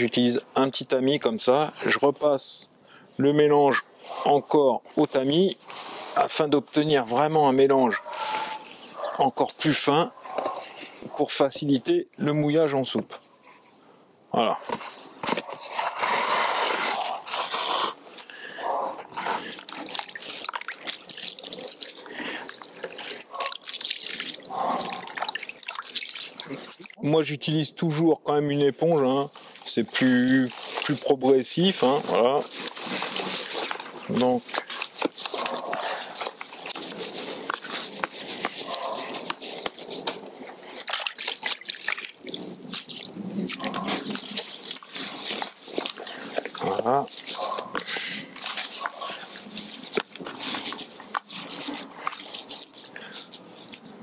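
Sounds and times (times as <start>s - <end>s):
sponge squeezed water splashing: 19.1s - 27.0s, 29.5s - 53.8s.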